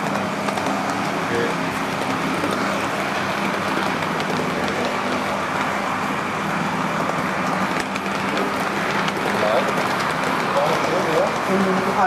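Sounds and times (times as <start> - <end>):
model train motor and wheels: 0.0 - 12.0.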